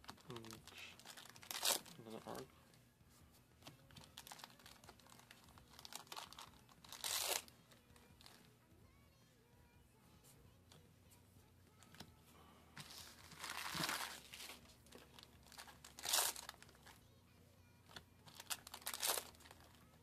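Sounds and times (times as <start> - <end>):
foil pack crinkling and tearing: 0.0 - 2.4, 4.0 - 7.5, 12.9 - 17.0, 18.3 - 19.8.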